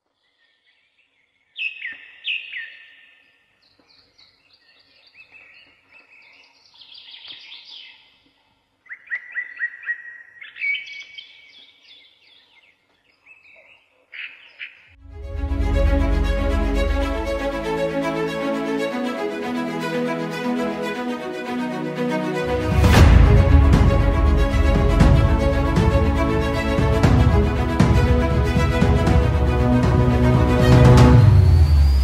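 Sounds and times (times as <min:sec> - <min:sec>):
birds singing and calling: 0:00.2 - 0:08.2, 0:08.9 - 0:14.9.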